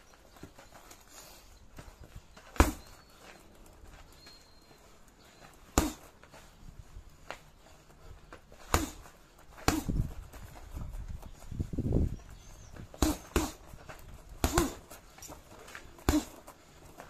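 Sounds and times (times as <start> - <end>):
boxing gloves punching heavy bag: 2.4 - 3.0, 5.6 - 6.2, 8.4 - 10.8, 12.8 - 17.0.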